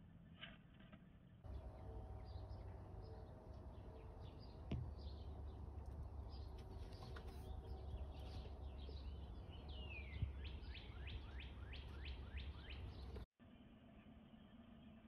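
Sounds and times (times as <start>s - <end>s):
songbirds singing: 1.5s - 13.3s.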